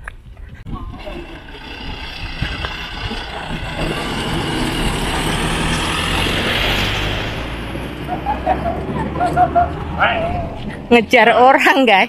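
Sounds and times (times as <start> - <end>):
minibus driving past: 1.0 - 11.5.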